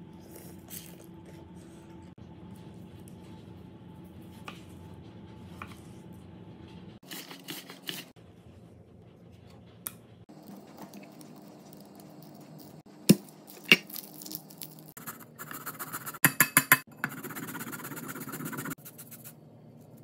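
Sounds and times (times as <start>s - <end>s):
low steady hum: 0.0s - 7.0s.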